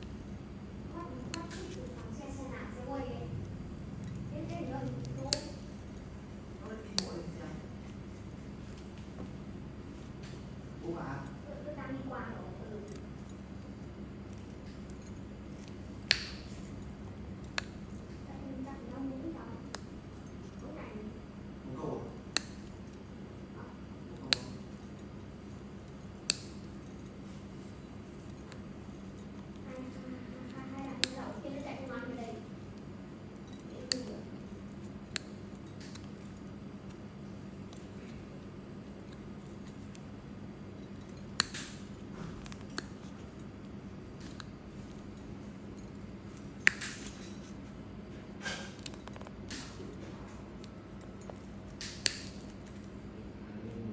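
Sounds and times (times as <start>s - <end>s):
steady low hum: 0.0s - 53.9s
nail nipper snipping toenail: 4.0s - 6.0s, 14.3s - 16.8s, 24.1s - 25.0s, 25.8s - 27.0s, 33.4s - 36.9s, 40.8s - 43.4s, 48.4s - 50.0s, 50.6s - 52.9s.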